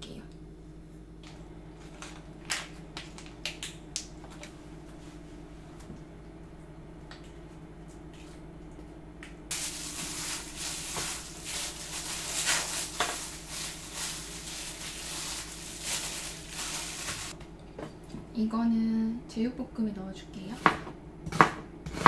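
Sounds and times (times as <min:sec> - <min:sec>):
low steady hum: 0:00.0 - 0:22.0
hand mixing meat in a tray: 0:09.5 - 0:17.4.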